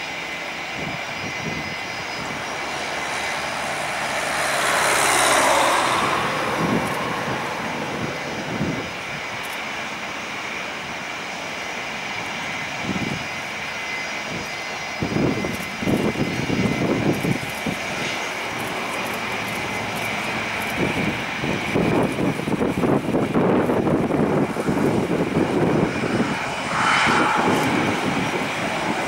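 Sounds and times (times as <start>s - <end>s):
jet engines whining: 0.0s - 29.0s
irregular low rumbling: 23.6s - 29.0s.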